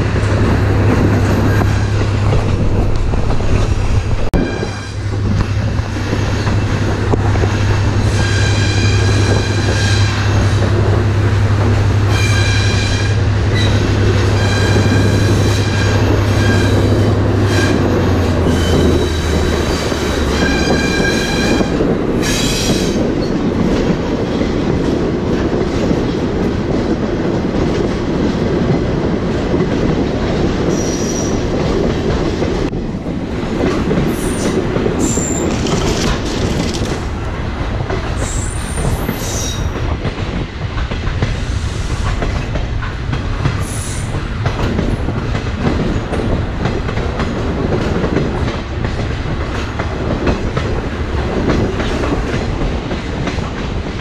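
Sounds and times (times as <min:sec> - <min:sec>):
railcar rumbling on rails: 0:00.0 - 0:54.0
train wheels squealing: 0:08.0 - 0:10.2, 0:12.1 - 0:23.4, 0:30.7 - 0:31.5, 0:34.2 - 0:35.6, 0:38.2 - 0:39.8.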